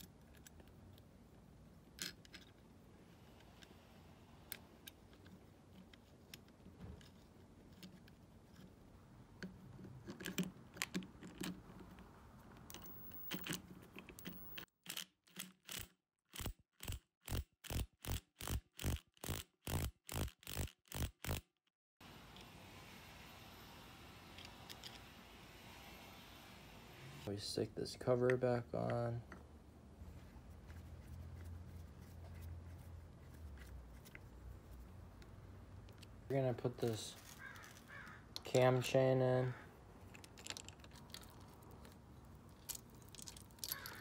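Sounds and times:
small metal parts clicking: 0:40.0 - 0:44.0.

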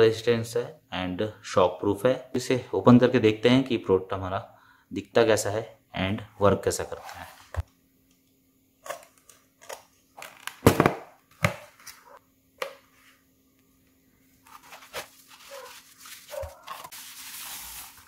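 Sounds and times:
knife slitting cardboard box: 0:14.5 - 0:18.0
plastic wrapping rustling: 0:14.5 - 0:18.0.

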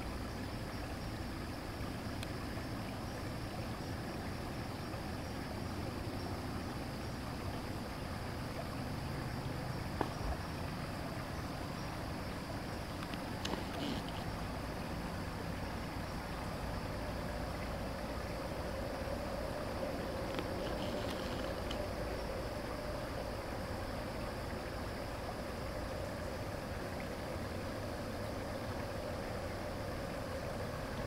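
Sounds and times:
low rumbling hiss of night ambience: 0:00.0 - 0:31.0
faint click: 0:13.0 - 0:14.3.

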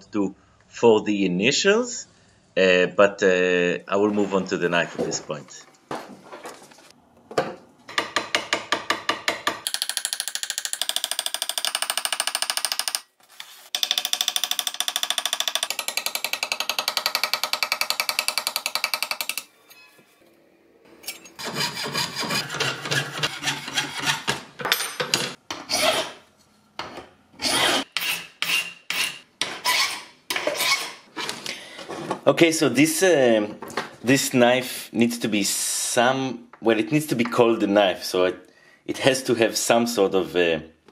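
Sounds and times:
fast even filing strokes: 0:21.4 - 0:24.3
hand file rasping on brass: 0:21.4 - 0:24.3.

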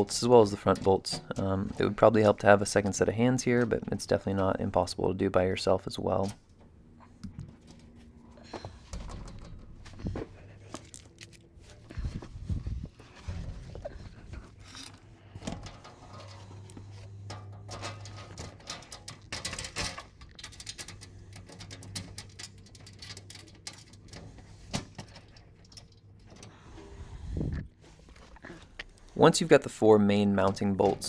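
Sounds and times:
steady low hum: 0:00.0 - 0:31.0
small metallic clicks and rattles: 0:13.9 - 0:26.6.

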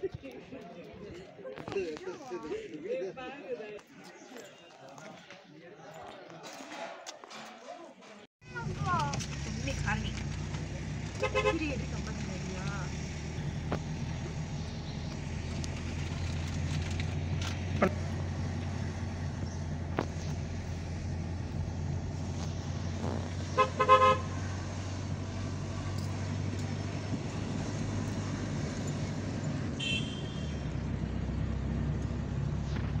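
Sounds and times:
car engine and road drone: 0:08.4 - 0:33.0
car horn toots: 0:11.2 - 0:11.8, 0:23.5 - 0:24.4, 0:29.8 - 0:30.7.

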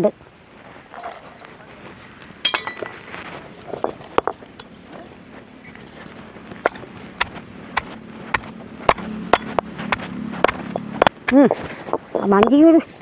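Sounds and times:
stone pestle grinding in mortar: 0:06.0 - 0:12.7.

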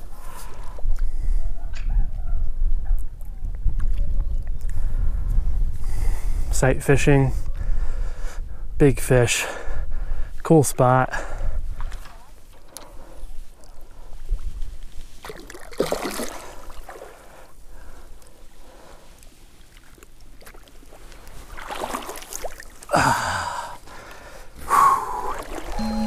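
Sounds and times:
splashing in shallow water: 0:15.2 - 0:18.4, 0:19.2 - 0:22.9, 0:25.1 - 0:25.8
person breathing and gasping: 0:22.9 - 0:25.4.

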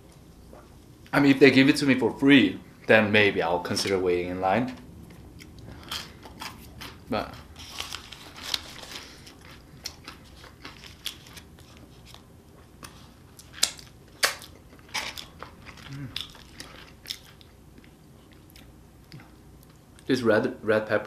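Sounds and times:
person chewing food: 0:05.0 - 0:20.0.

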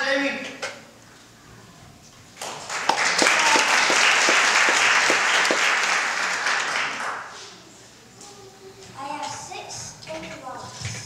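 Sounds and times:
audience applauding: 0:02.4 - 0:07.4
nearby person clapping: 0:02.4 - 0:07.4.

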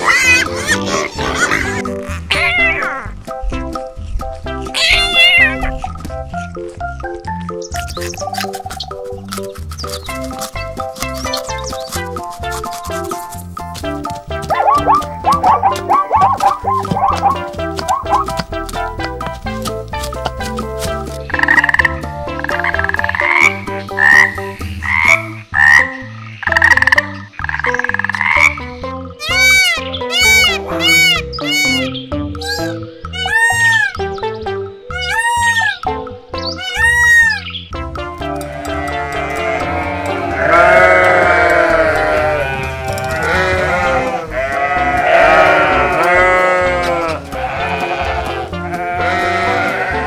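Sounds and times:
background music: 0:00.0 - 0:50.0
frog croaking: 0:14.5 - 0:18.4, 0:21.3 - 0:28.7
sheep bleating: 0:38.4 - 0:50.0.

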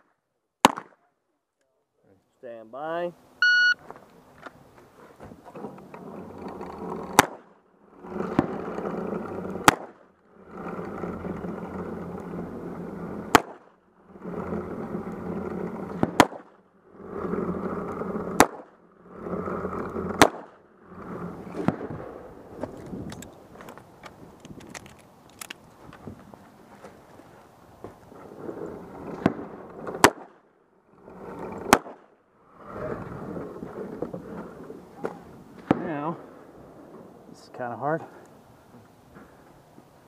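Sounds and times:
revolver shots: 0:13.3 - 0:13.7, 0:16.0 - 0:16.5.

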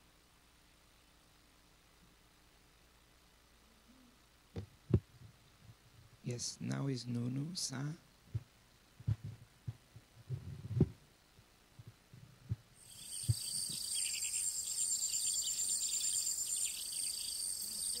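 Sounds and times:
soft low thumps: 0:08.3 - 0:11.1, 0:11.7 - 0:14.0
crickets chirring: 0:12.8 - 0:18.0.

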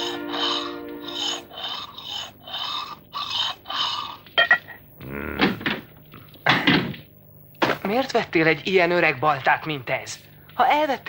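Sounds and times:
person grunting: 0:05.0 - 0:05.6.

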